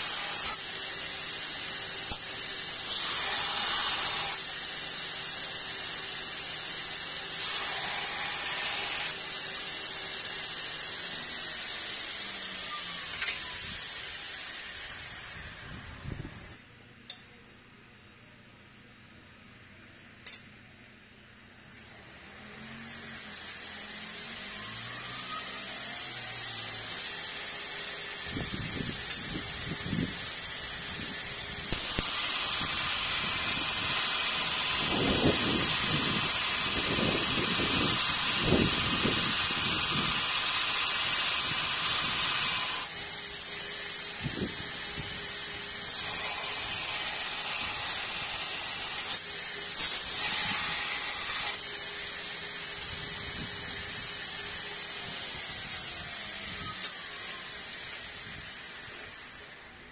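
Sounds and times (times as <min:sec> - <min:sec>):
belt grinder running: 0:00.0 - 0:15.8, 0:21.9 - 0:59.6
grinding steel hiss: 0:00.0 - 0:17.2, 0:21.2 - 0:59.9.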